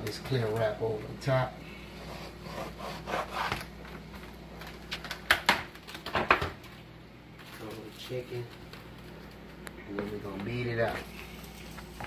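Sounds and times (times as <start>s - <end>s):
plastic wrap crinkling: 3.5s - 12.0s.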